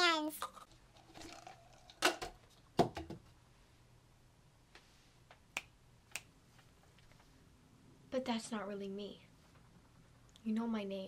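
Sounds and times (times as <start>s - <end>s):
finger snaps: 5.5s - 6.3s.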